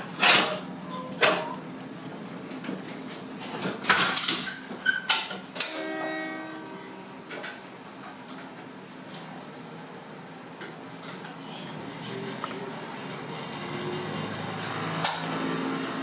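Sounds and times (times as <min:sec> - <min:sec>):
steady low hum: 0:05.7 - 0:13.4
ringing tone: 0:05.8 - 0:07.0.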